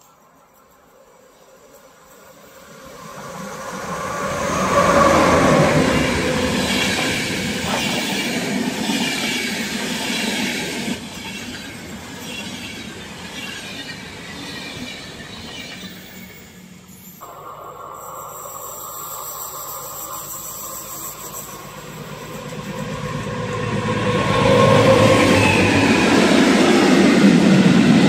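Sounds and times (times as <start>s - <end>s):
train rushing past: 1.0s - 28.0s
train wheels clattering on rails: 1.5s - 16.5s.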